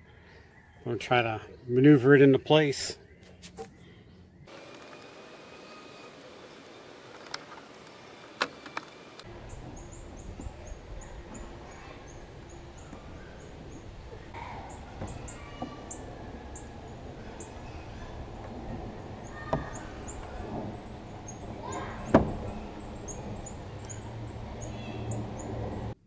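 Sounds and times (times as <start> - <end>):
birds chirping: 0.0 - 26.0
sharp knocks: 19.4 - 20.8, 21.4 - 23.3.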